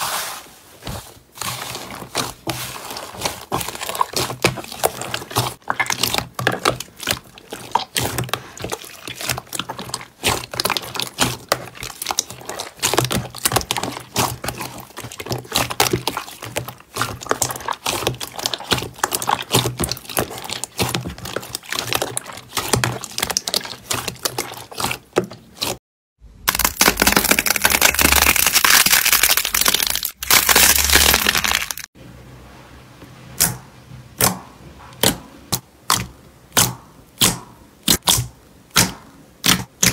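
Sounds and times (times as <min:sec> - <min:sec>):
slime crackling: 0:00.9 - 0:25.8, 0:26.4 - 0:31.9.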